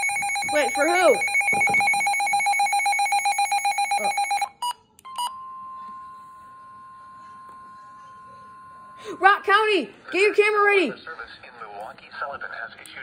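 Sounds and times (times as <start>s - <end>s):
rapid pulsing alarm beeps: 0.0s - 5.4s
steady alarm tone: 0.0s - 9.6s.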